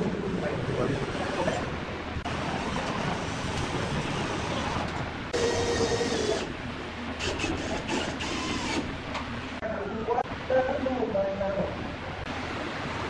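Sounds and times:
electric drill whirring: 5.4 - 6.6, 7.2 - 8.9.

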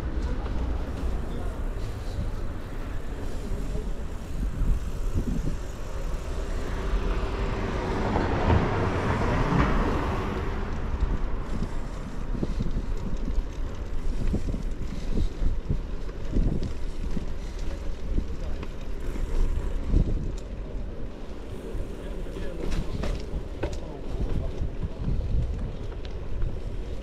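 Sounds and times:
vehicle passing: 0.0 - 15.3
traffic noise: 0.0 - 27.0
wind rumble on microphone: 0.0 - 27.0.

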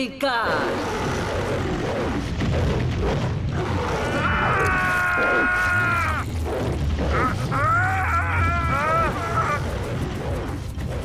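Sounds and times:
low rumbling score: 0.4 - 11.0
crashes and thuds: 1.5 - 11.0
held high cry: 4.0 - 6.2, 7.1 - 9.6.

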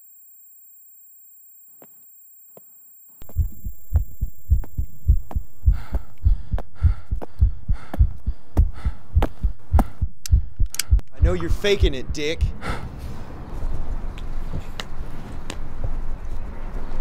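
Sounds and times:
low double thump heartbeat: 3.2 - 12.7
faint hum: 3.2 - 14.0.

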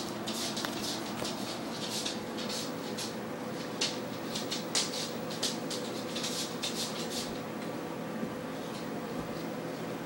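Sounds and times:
puppy chewing rope toy: 0.0 - 7.4.

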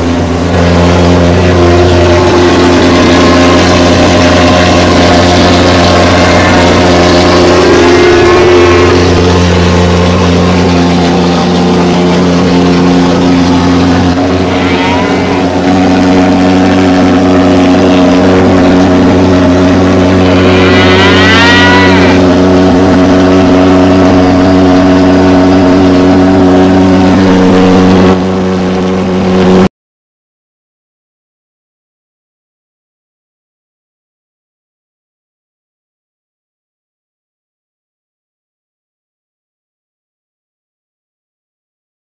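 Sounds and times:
thermal fogger pulse-jet engine: 0.0 - 29.7.

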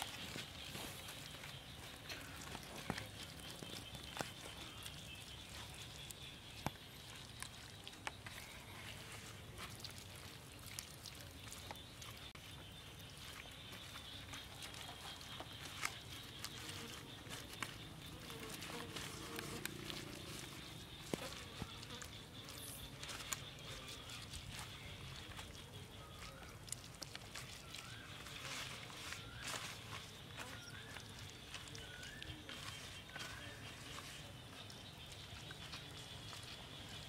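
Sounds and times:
hands rubbing raw meat: 13.2 - 37.0.

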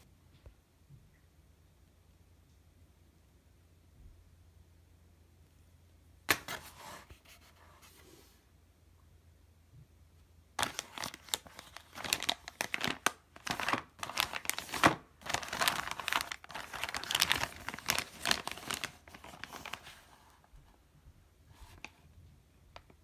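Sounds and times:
plastic bag crinkling: 10.6 - 20.5.

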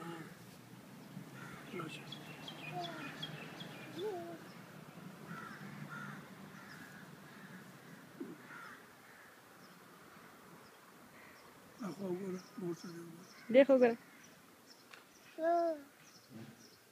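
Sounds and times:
small birds chirping: 0.0 - 16.9
crows cawing: 1.3 - 1.9, 5.2 - 10.4, 11.1 - 11.5, 13.3 - 14.4
toddler squeaking: 3.9 - 4.5, 15.4 - 15.9.

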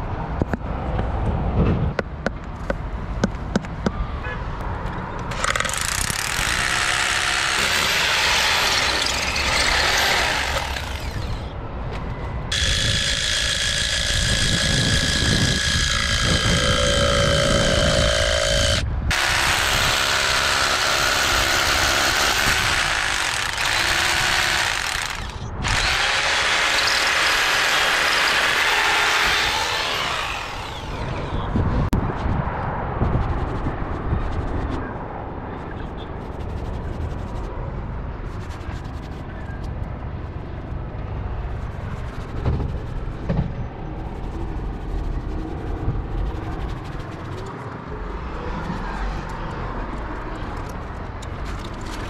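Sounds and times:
power tool running: 5.3 - 11.5, 12.5 - 31.4
steady whine: 5.4 - 31.6.

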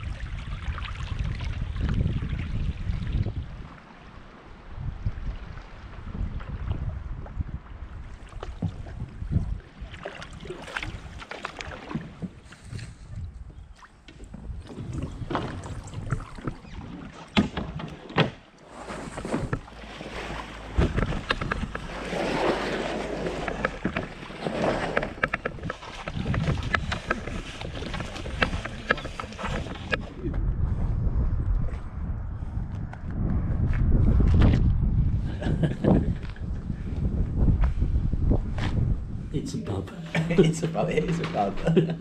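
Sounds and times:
wind on microphone: 0.0 - 17.8, 18.9 - 42.0
paddle splashes: 0.0 - 30.2
paddles knocking against hull: 8.2 - 12.9, 14.0 - 30.2.

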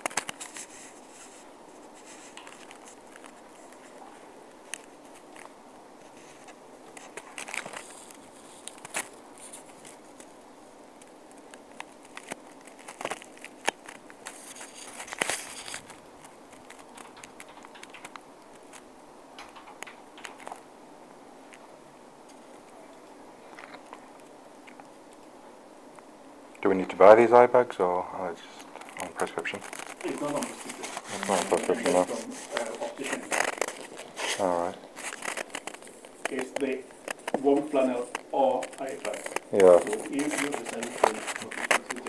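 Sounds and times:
faint room hiss: 0.0 - 42.0
rustling and crinkling: 0.0 - 42.0
sharp clicks: 16.7 - 18.2, 19.4 - 20.6.

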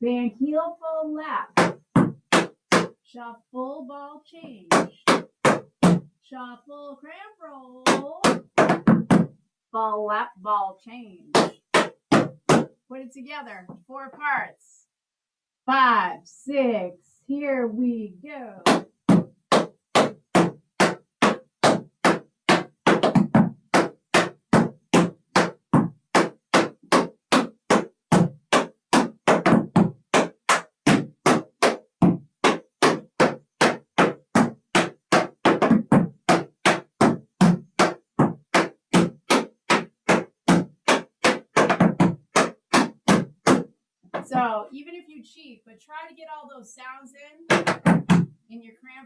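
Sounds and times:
tap shoes on wooden board: 1.5 - 3.0, 4.7 - 6.1, 7.8 - 9.4, 11.3 - 12.8, 18.6 - 44.3, 47.5 - 48.3.

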